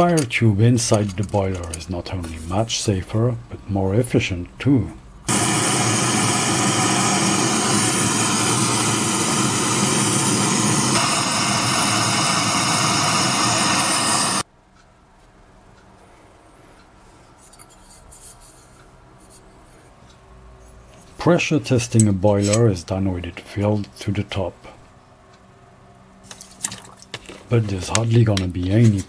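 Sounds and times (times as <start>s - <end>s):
gas torch flame hissing: 5.3s - 14.5s.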